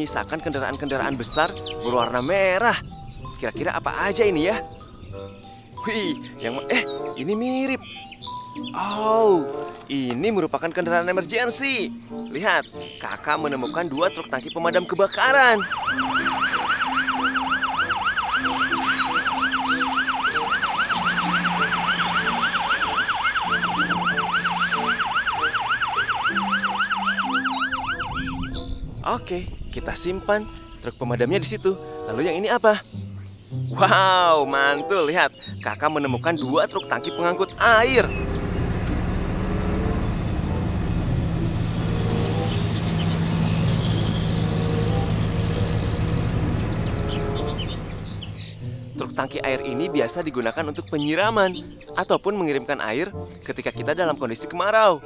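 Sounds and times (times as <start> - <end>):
fire engine siren yelp: 15.2 - 28.8, 37.6 - 48.6
water spraying hiss: 40.9 - 46.8.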